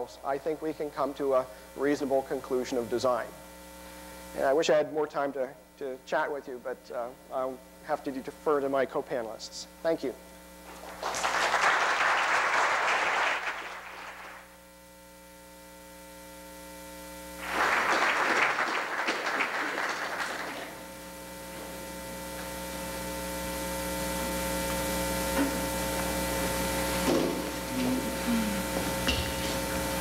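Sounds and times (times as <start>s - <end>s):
steady hum: 0.0s - 30.0s
audience applauding: 10.7s - 14.5s, 17.4s - 20.9s.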